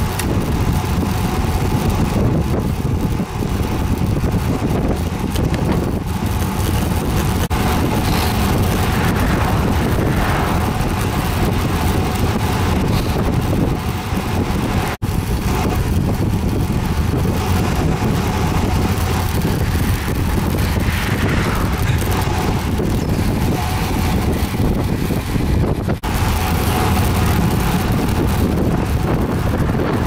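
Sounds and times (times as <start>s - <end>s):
wind buffeting microphone: 0.0s - 30.0s.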